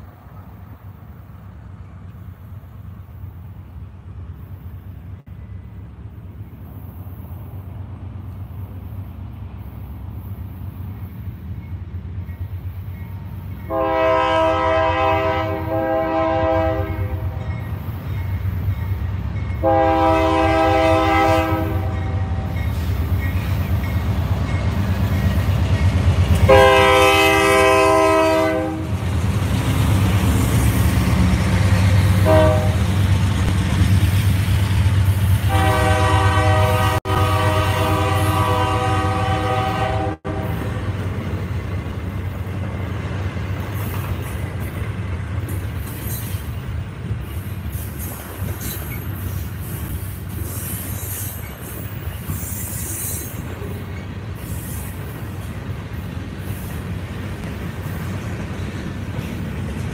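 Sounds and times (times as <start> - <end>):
diesel locomotive engine rumble: 0.0 - 59.9
locomotive air horn blasts: 13.7 - 17.4, 19.6 - 22.6, 26.4 - 28.9, 32.1 - 33.0, 35.4 - 40.7.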